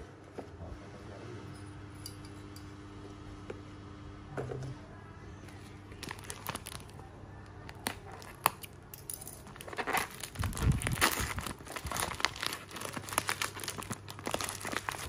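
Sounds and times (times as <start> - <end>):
plastic bag crinkling: 5.9 - 15.0.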